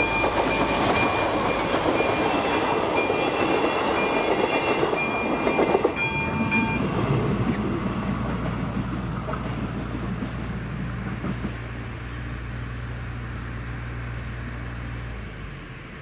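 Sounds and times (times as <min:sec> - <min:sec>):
crossing warning ringer: 0:00.0 - 0:07.7
train wheels clattering on rails: 0:00.0 - 0:12.2.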